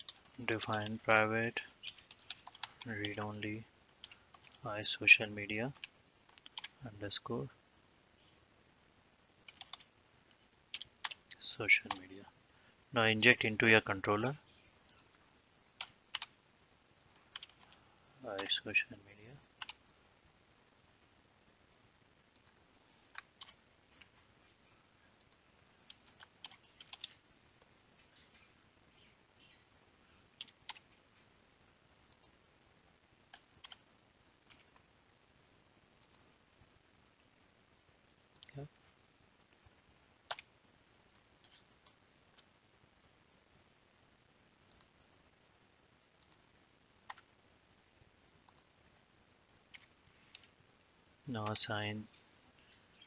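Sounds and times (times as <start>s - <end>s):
computer mouse clicks: 5.7s - 6.8s, 9.4s - 9.9s, 17.2s - 17.8s, 19.6s - 19.8s, 22.3s - 24.1s, 25.2s - 27.2s, 30.4s - 30.9s, 32.1s - 32.4s, 33.3s - 33.8s, 34.4s - 34.8s, 36.0s - 36.3s, 40.3s - 40.5s, 44.7s - 44.9s, 46.2s - 46.4s, 47.1s - 47.3s, 48.4s - 48.7s.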